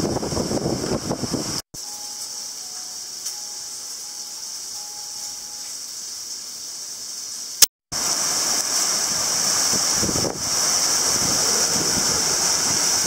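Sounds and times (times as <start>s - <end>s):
strong wind through closed window: 0.0s - 1.6s, 8.1s - 13.0s.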